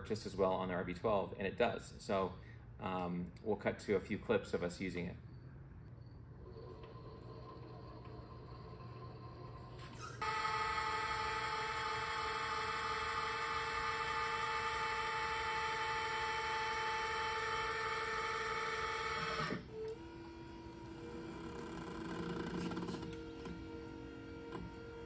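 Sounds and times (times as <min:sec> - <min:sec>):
electric actuators whining: 0:05.9 - 0:25.0.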